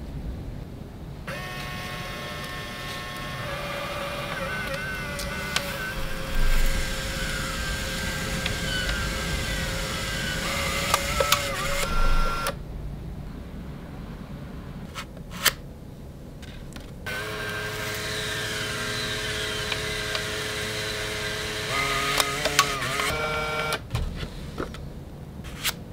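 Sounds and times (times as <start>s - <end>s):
printer motor whirring: 1.3s - 12.6s, 17.1s - 23.9s
small clicks: 1.3s - 12.6s, 16.4s - 23.9s.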